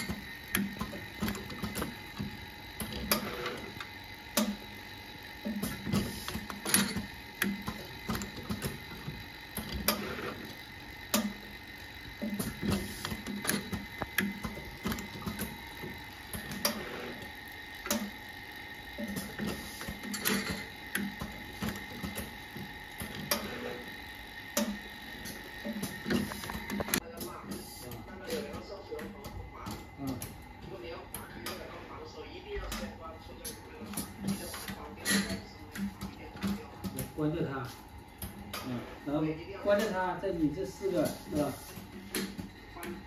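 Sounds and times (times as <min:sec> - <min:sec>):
machine clicks and clacks: 0:00.0 - 0:18.2, 0:18.9 - 0:23.9, 0:24.5 - 0:31.7.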